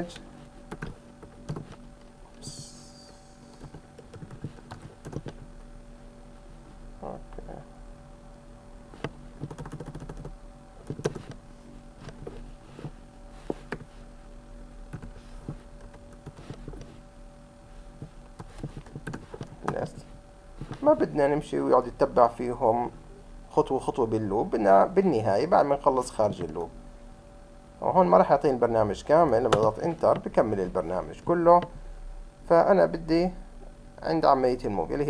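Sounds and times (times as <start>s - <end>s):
faint steady hum: 0.0s - 35.0s
computer keyboard typing: 0.7s - 1.8s, 3.5s - 5.4s, 9.4s - 11.4s, 14.9s - 15.1s, 18.4s - 20.0s.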